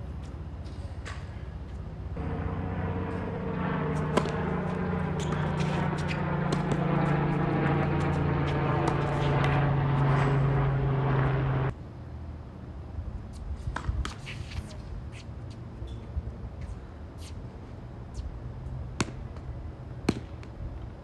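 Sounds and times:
low machine hum: 2.0s - 11.7s.

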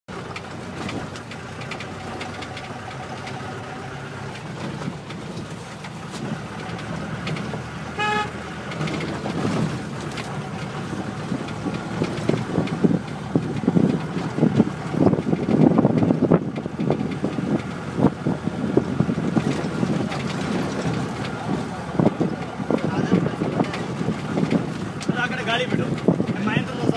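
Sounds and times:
vehicle running: 0.1s - 26.9s
low buffeting: 0.3s - 26.9s
horn toot: 8.0s - 8.4s.

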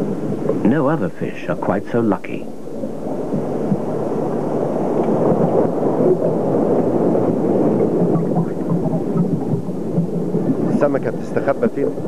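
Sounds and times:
loud low rumble: 2.4s - 12.0s.

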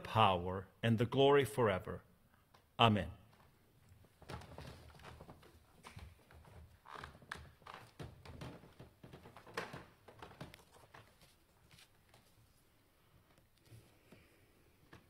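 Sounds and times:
paper rustling: 9.3s - 12.8s.

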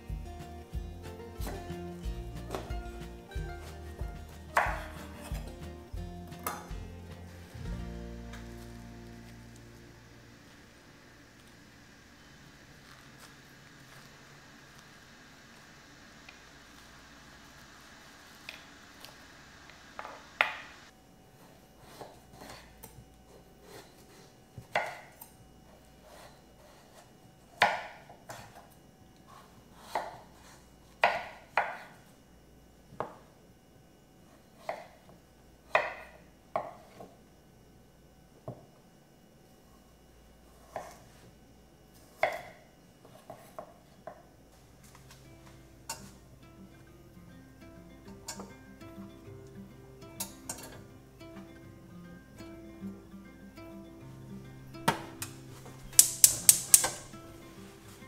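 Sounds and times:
knife chopping on wooden board: 4.5s - 5.6s, 27.6s - 28.6s, 29.8s - 30.2s, 31.0s - 31.9s.

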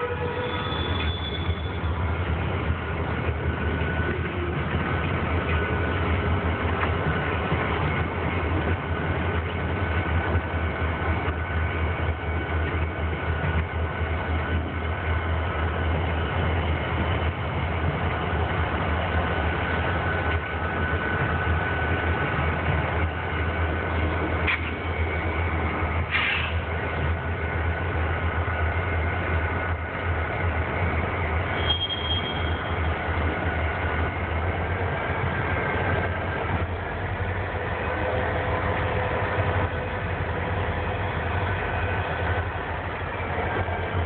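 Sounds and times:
diesel locomotives rumbling: 0.0s - 44.0s
short high-pitched squeal: 0.2s - 2.0s, 31.6s - 32.8s.

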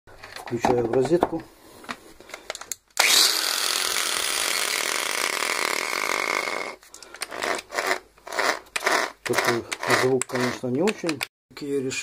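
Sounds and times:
angle grinder whining: 3.0s - 10.6s.

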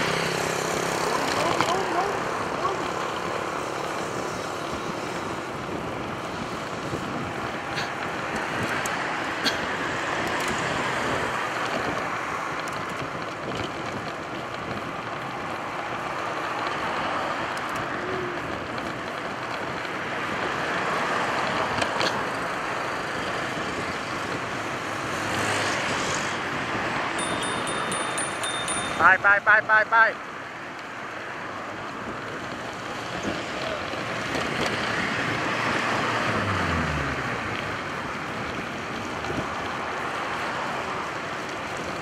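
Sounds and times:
cars passing by: 0.0s - 42.0s
road and traffic noise: 0.0s - 42.0s
wind rush: 4.0s - 15.9s.

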